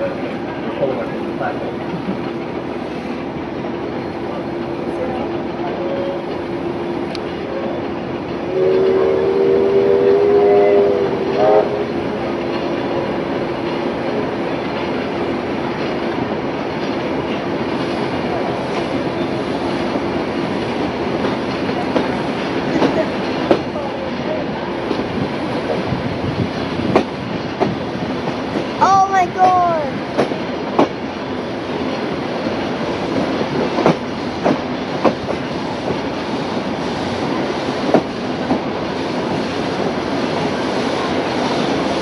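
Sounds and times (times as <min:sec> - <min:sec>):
train wheels clattering on rails: 0:00.0 - 0:42.0
steam locomotive whistle: 0:08.4 - 0:12.0.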